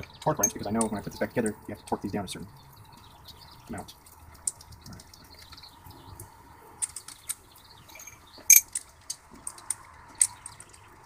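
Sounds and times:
metal bolts clicking and clinking: 0.0s - 1.1s, 6.8s - 10.9s.

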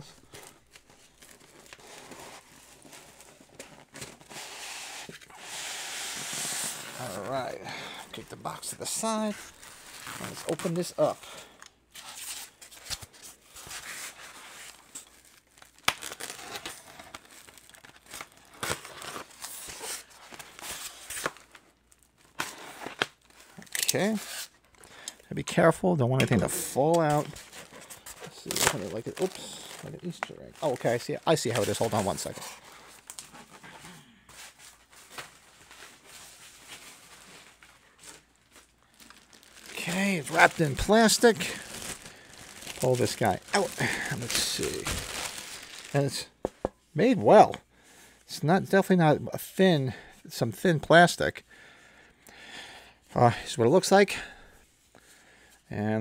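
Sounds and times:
packaging rustling and tearing: 0.0s - 5.3s, 6.0s - 25.2s, 26.4s - 46.4s.

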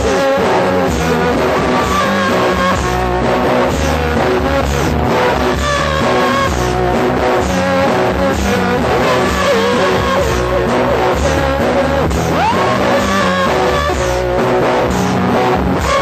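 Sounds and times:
lo-fi rock song: 0.0s - 16.0s.

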